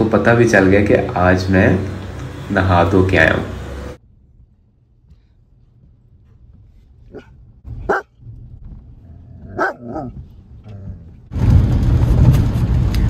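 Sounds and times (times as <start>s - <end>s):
rain and moving car noise: 0.0s - 4.0s, 10.2s - 13.0s
dog barking aggressively: 7.1s - 8.2s, 9.4s - 10.2s.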